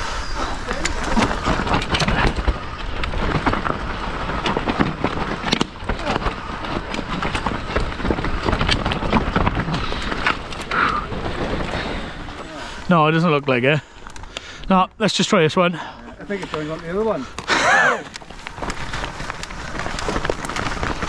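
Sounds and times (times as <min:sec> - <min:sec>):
bike tyres on dirt trail: 0:00.0 - 0:21.0
sharp clacks and rattles: 0:00.8 - 0:12.8.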